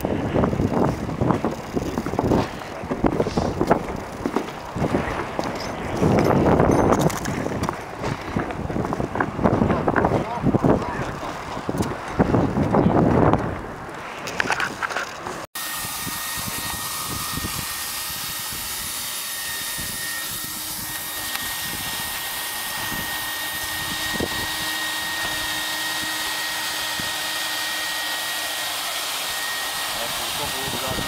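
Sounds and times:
high whine: 15.6s - 31.0s
hot-air welder blower rushing: 15.6s - 31.0s.

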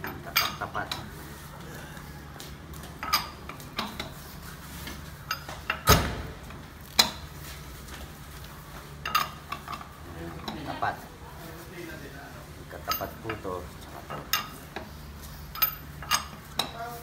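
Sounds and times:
heavy clunk of wheel: 5.6s - 7.2s
metallic clinks and knocks: 15.5s - 16.7s.

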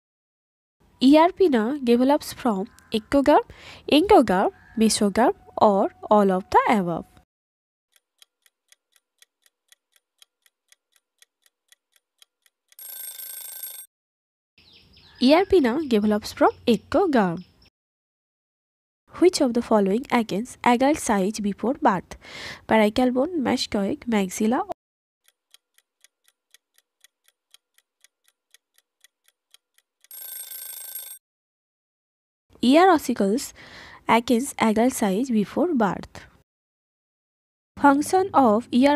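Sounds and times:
clock ticking: 7.9s - 12.8s, 25.2s - 30.2s
alarm ringing: 12.8s - 13.9s, 30.1s - 31.2s.

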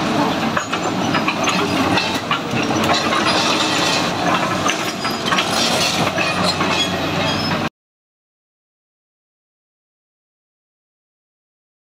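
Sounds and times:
diesel engine running: 0.0s - 7.7s
track chains clanking: 0.0s - 7.7s.

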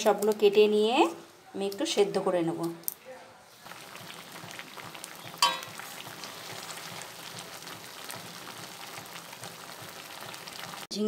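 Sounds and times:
water boiling and bubbling: 2.8s - 10.9s
spatula stirring in a wok: 3.6s - 10.8s.

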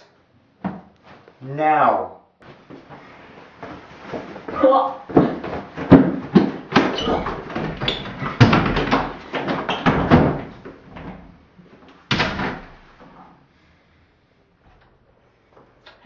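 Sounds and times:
loud knocks and bangs: 5.1s - 10.7s.

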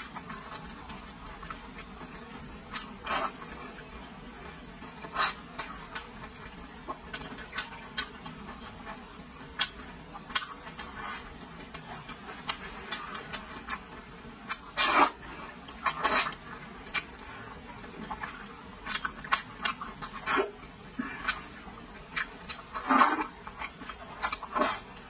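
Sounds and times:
chewing and lip-smacking: 2.6s - 3.6s, 5.0s - 17.4s, 18.0s - 25.0s.

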